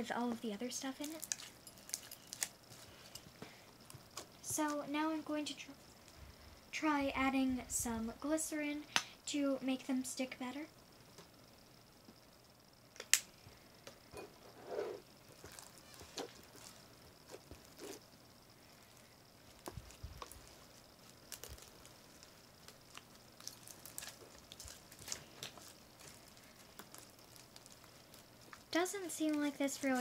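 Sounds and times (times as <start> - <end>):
slime squelching: 0.8 - 4.8, 18.8 - 30.0.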